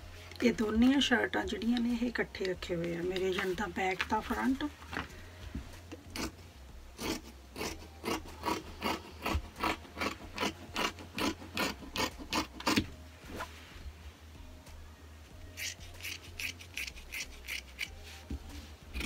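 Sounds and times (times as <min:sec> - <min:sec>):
scissors cutting fabric: 0:07.0 - 0:12.9, 0:15.5 - 0:18.0.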